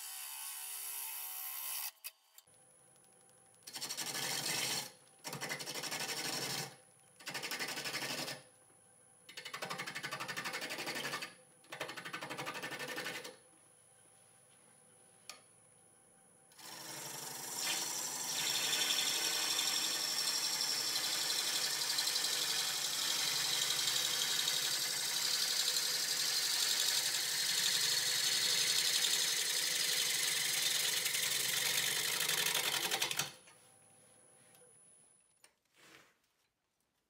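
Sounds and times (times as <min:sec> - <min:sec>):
lathe tool cutting wood: 0:16.6 - 0:31.0.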